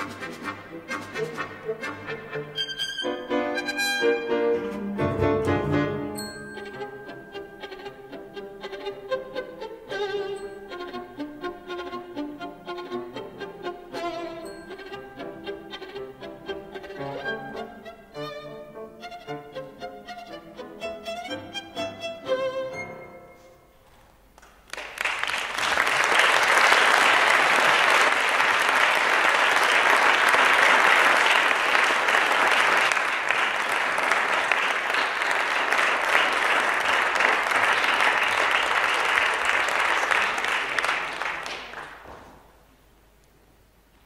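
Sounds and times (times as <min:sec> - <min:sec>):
audience applauding: 0:24.4 - 0:42.5.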